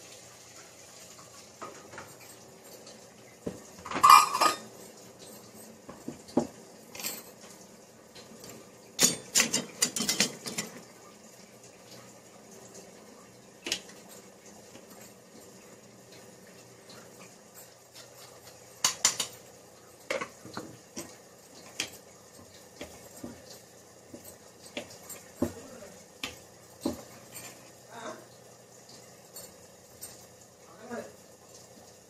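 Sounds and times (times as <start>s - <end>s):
clinks of metal cutlery: 3.8s - 5.8s, 6.9s - 7.5s, 9.0s - 10.8s, 17.5s - 19.4s, 24.1s - 27.7s.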